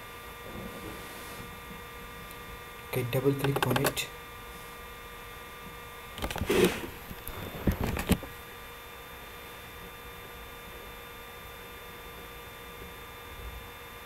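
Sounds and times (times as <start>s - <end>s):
electrical hum with high tones: 0.0s - 14.0s
computer mouse clicks: 3.4s - 4.0s.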